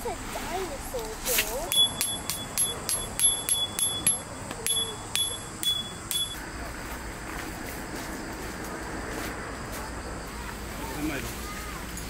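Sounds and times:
metallic taps ringing: 1.7s - 6.4s.

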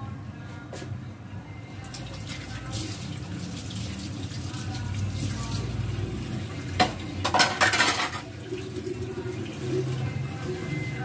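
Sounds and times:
dishes and utensils clattering: 6.8s - 8.7s.

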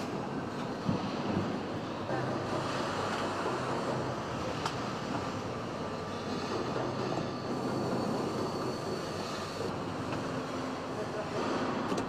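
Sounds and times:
assembly line machinery noise: 0.0s - 12.0s.

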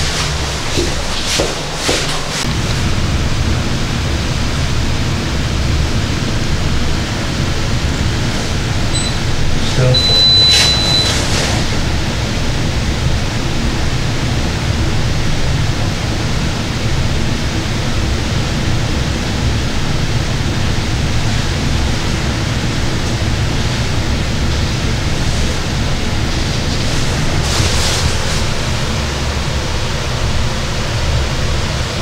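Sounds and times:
short high-pitched tone: 9.0s - 11.3s.

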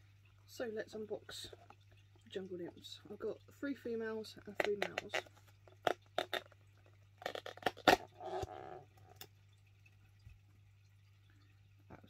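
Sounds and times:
plastic clicks and taps: 4.6s - 6.5s.

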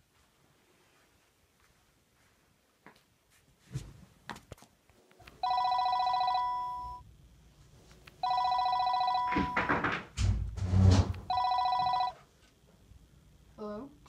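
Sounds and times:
telephone ringing with electronic trill: 5.4s - 7.0s, 8.2s - 9.7s, 11.3s - 12.2s.

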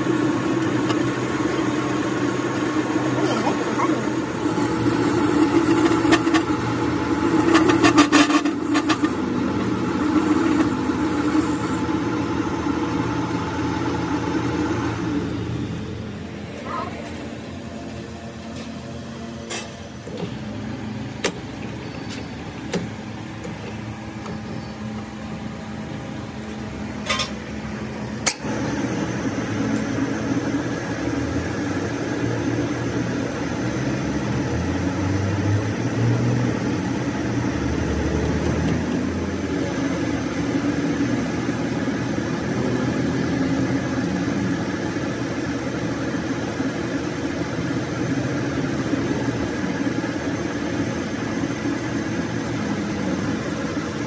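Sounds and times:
drill cutting metal high whine: 0.0s - 15.5s
metal lathe running: 0.0s - 54.0s.

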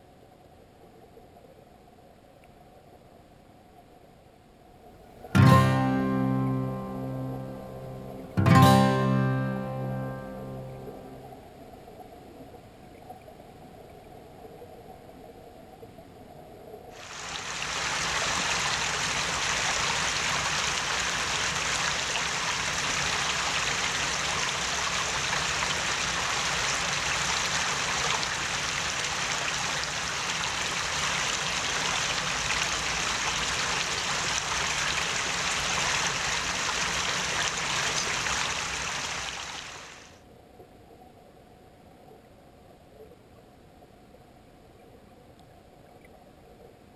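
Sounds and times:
stream running over stones: 16.9s - 40.2s.

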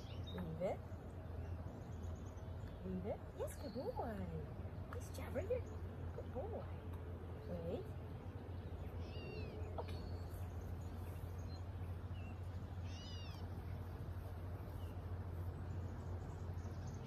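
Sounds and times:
steady low hum: 0.0s - 17.0s
bird mewing chirps: 8.4s - 13.8s.

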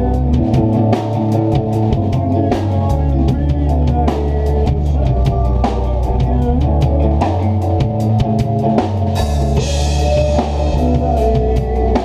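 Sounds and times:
bass guitar: 0.0s - 12.0s
drum kit beat: 0.0s - 12.0s
electric guitar chords: 0.0s - 12.0s.

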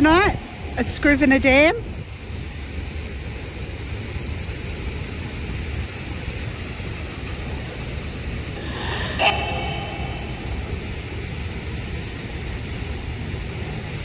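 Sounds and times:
low rumble: 0.0s - 2.2s, 8.4s - 11.8s
static hiss from phone speaker: 8.5s - 11.3s.

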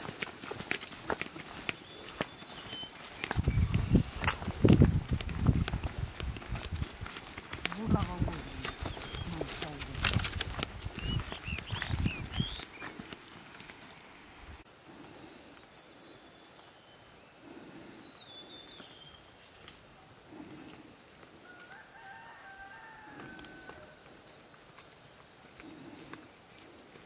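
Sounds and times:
footsteps on a path: 0.0s - 15.7s, 17.5s - 27.0s
high bird chirp: 10.9s - 12.8s
distant rooster crowing: 21.4s - 24.2s.

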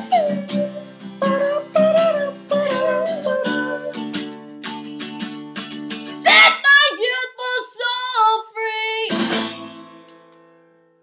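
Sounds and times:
person singing: 0.0s - 4.4s, 6.1s - 9.2s
acoustic guitar strumming: 0.0s - 7.1s, 9.1s - 11.0s.

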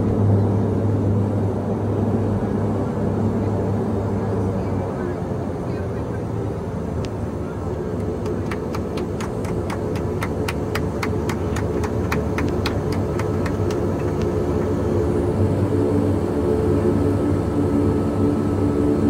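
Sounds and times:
turboprop engines droning: 0.0s - 19.0s.

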